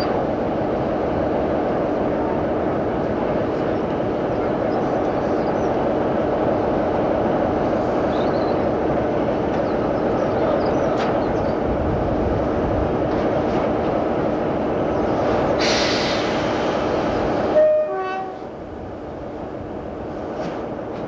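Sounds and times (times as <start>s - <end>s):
train rail and wind noise: 0.0s - 21.0s
rush of hiss: 15.2s - 17.5s.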